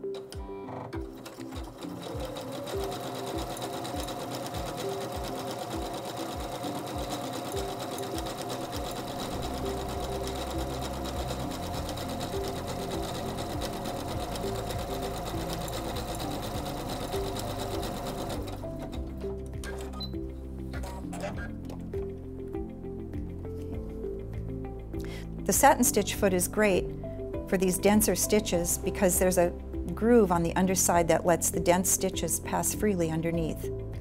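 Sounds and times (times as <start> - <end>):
sewing machine stitching: 0.1 - 20.1.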